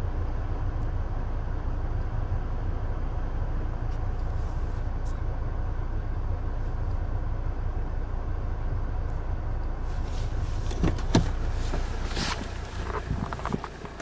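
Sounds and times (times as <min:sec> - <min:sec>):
diesel engine idling: 0:00.0 - 0:14.0.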